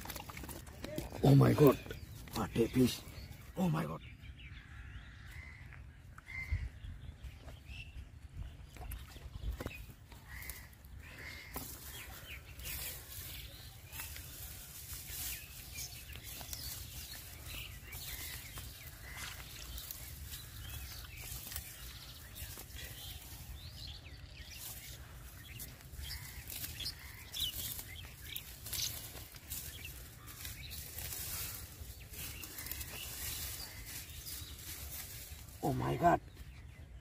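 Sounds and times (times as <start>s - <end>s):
dry grass rustling: 10.2s - 36.8s.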